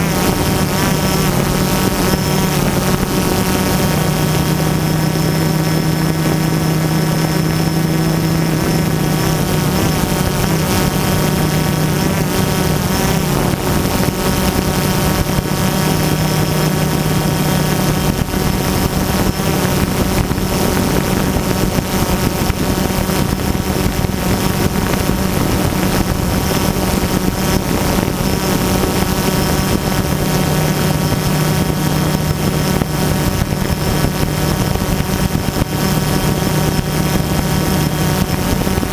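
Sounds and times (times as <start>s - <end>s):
drone propellers whining: 0.0s - 38.9s.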